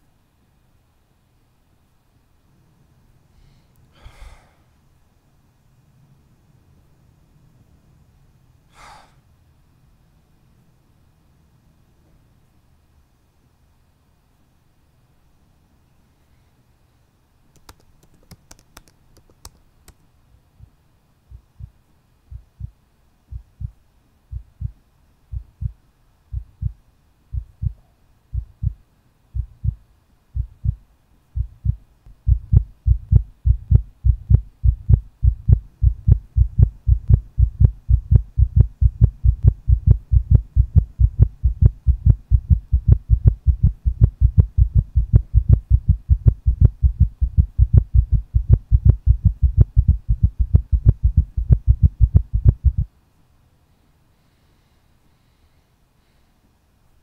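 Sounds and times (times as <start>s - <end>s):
laptop keyboard typing: 17.6s - 20.0s
heartbeat double thumps: 20.6s - 28.8s, 29.4s - 29.8s, 30.4s - 30.8s, 31.4s - 52.9s.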